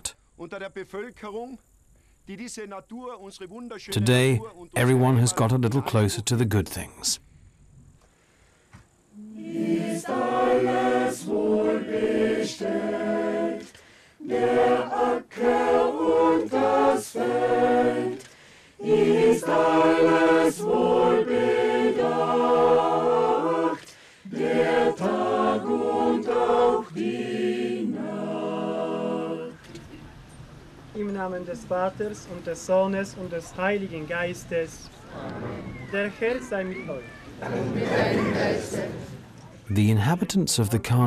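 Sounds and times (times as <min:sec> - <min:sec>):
singers breathing: 0:07.2 - 0:09.0, 0:13.7 - 0:14.2, 0:18.2 - 0:18.8, 0:23.8 - 0:24.3
choir singing a cappella: 0:09.1 - 0:29.7, 0:37.4 - 0:39.3.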